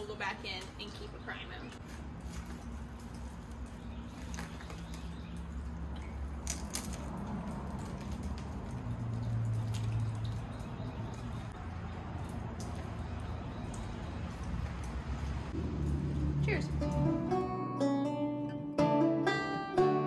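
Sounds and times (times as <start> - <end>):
crackers crunching: 1.8 - 10.2
plastic bag crinkling: 1.8 - 10.2.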